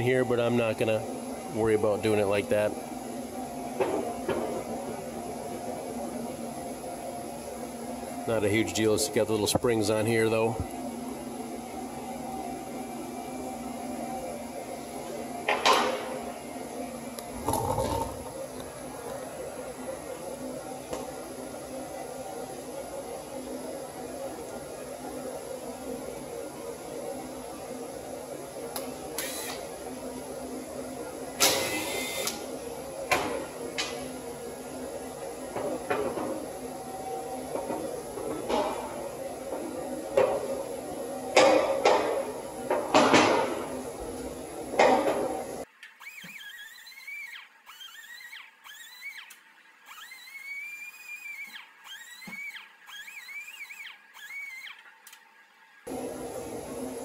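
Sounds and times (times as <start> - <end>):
steady shop hum: 0.0 - 57.0
background hum: 14.8 - 21.1.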